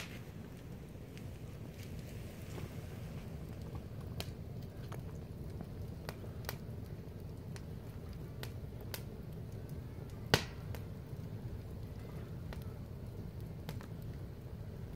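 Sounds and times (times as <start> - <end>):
fire crackling and popping: 0.0 - 14.9.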